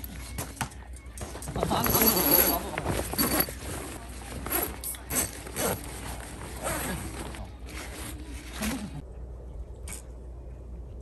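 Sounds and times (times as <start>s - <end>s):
zipper being pulled: 2.0s - 9.0s.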